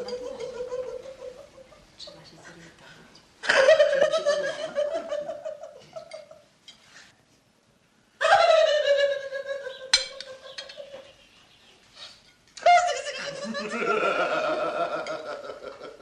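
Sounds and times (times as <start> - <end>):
woman laughing: 3.4 - 6.3, 8.2 - 11.1, 12.6 - 16.0.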